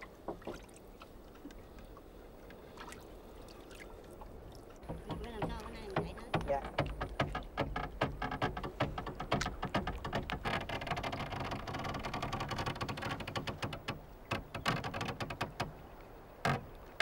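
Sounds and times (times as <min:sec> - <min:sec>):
wooden clicks and knocks: 0:04.8 - 0:15.8.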